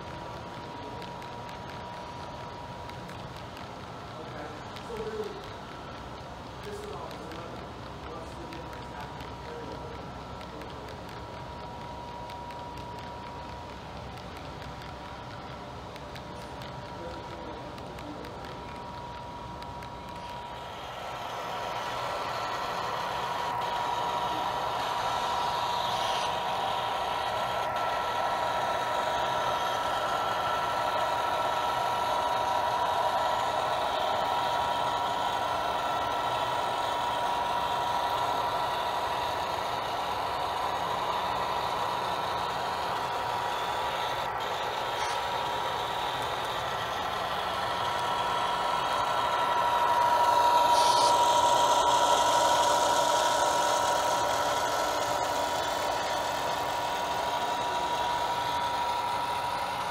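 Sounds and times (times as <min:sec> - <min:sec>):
model locomotive drone and whine: 0:00.0 - 0:59.9.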